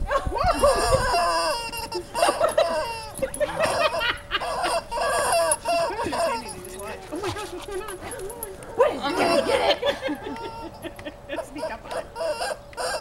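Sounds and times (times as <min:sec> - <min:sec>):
rubber chicken toy squawking: 0:00.6 - 0:06.4, 0:11.6 - 0:13.0.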